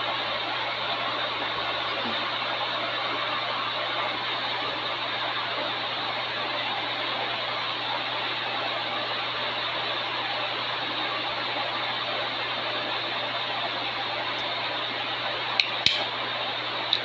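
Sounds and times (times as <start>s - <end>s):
sharp light clicks: 15.6s - 16.1s.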